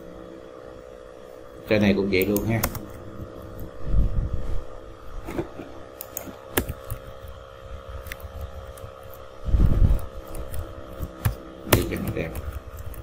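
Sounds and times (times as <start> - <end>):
steady low hum: 0.0 - 13.0
keyboard and mouse clicks: 6.0 - 7.2, 10.0 - 13.0.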